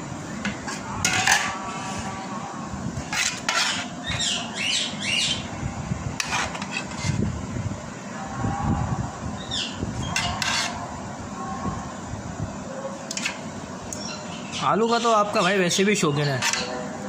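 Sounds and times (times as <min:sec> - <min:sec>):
squeaky spoon scrapes: 0:03.1 - 0:04.4, 0:06.2 - 0:07.2, 0:10.0 - 0:10.8, 0:16.3 - 0:16.8.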